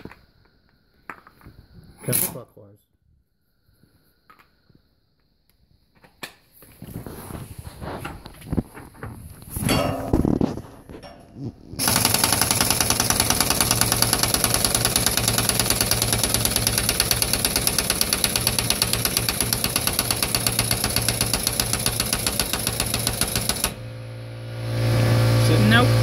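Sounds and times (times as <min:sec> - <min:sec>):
pneumatic impact wrench hammering: 0:11.0 - 0:24.0.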